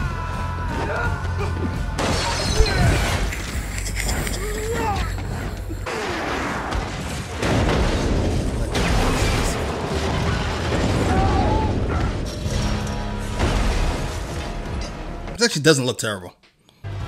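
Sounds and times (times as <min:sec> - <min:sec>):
action film music: 0:00.0 - 0:15.4
booms and crashes: 0:05.8 - 0:14.7.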